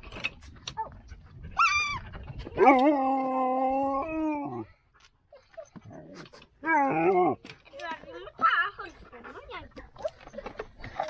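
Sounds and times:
dog howl-like whine: 2.6 - 4.6.

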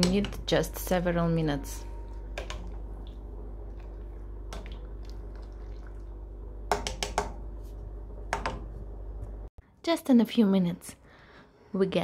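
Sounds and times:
low hum: 0.0 - 9.6
boiling water bubbling: 2.4 - 7.3.

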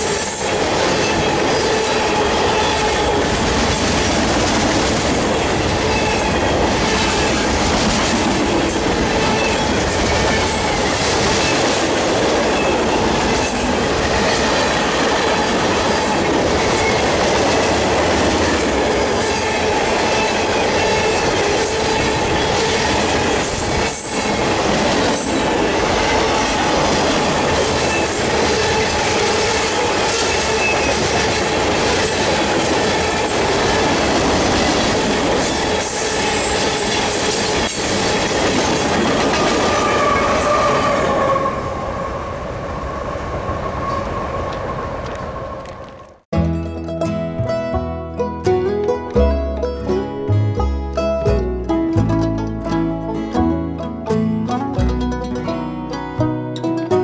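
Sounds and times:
train wheel squeal: 0.0 - 3.2, 5.8 - 7.5, 9.1 - 11.7, 27.6 - 31.2, 35.5 - 38.0, 39.4 - 42.3, 43.2 - 45.8.

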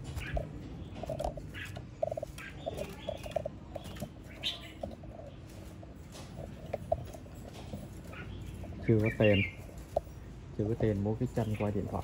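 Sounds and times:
bird chirps and pips: 0.0 - 5.8, 7.9 - 10.2.

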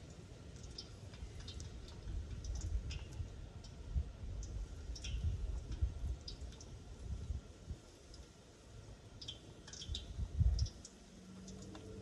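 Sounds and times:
wind rumbling on microphone: 1.1 - 8.0, 9.7 - 10.9.

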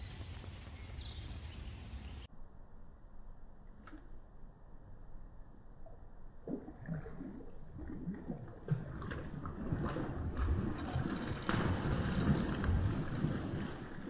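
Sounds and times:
swan splashing in water: 6.5 - 14.0.

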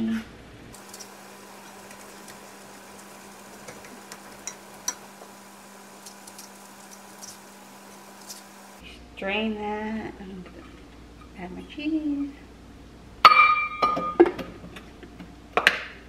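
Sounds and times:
steady low hum: 0.6 - 9.3
spoon scraping and tapping: 1.7 - 7.5.

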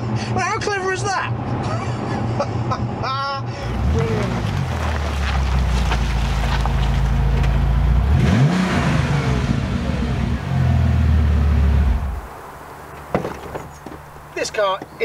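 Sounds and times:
car engine running: 3.6 - 13.0.

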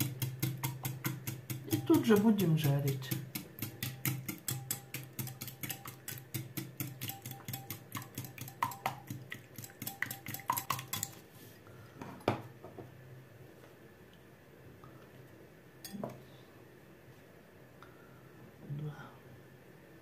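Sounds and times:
utensil clicking against bowl: 0.0 - 11.2.

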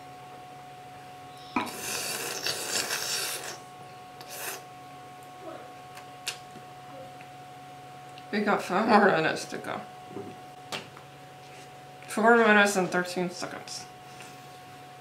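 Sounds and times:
slurping through a straw: 1.6 - 3.6.

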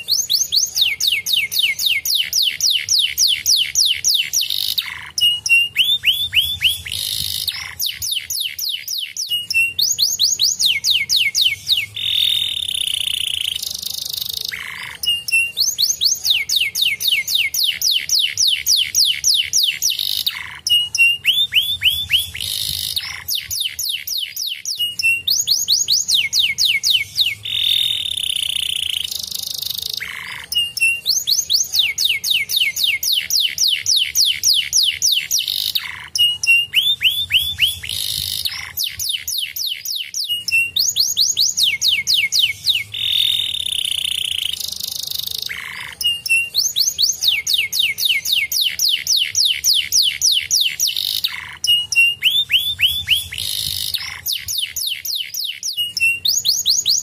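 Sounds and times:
canary singing: 0.0 - 57.0.

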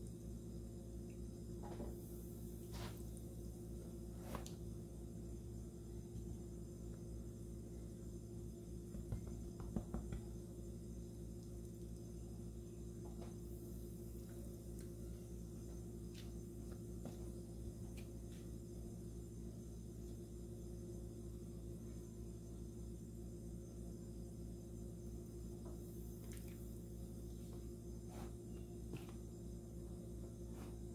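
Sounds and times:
low electrical hum: 0.0 - 30.9
knocks in a plastic bowl: 9.0 - 10.3.

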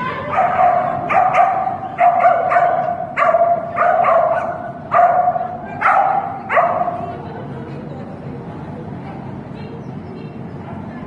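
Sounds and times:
dog barking: 0.2 - 7.1.

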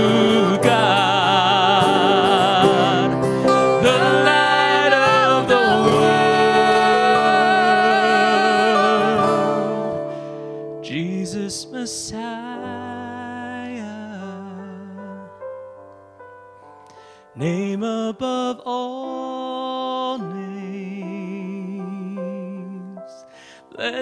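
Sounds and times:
people singing with vibrato: 0.0 - 15.2
acoustic guitars: 0.0 - 15.4
keyboard: 0.0 - 24.0.

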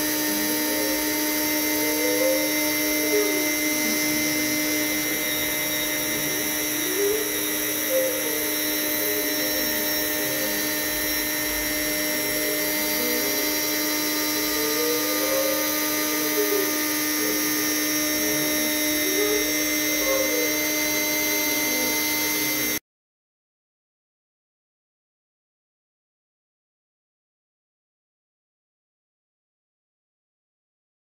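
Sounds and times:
drive motors whining: 0.0 - 22.8
router spindle whine: 0.0 - 22.8.

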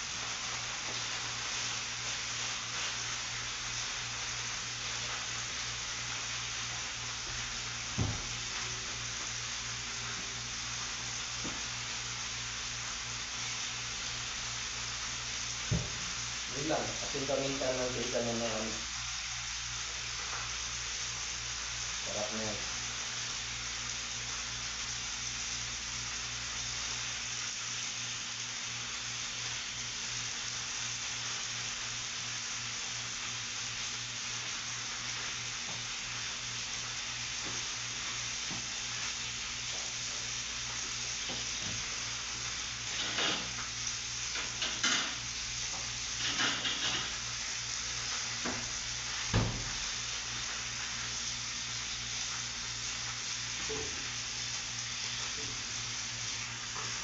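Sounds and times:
steak sizzling in a pan: 0.0 - 57.0
dishes and utensils clinking: 46.2 - 47.2.

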